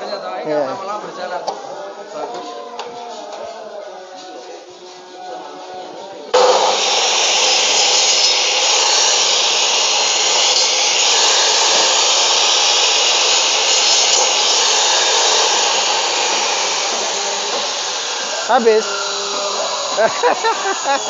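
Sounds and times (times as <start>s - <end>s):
saw cutting through bone: 6.4s - 21.0s.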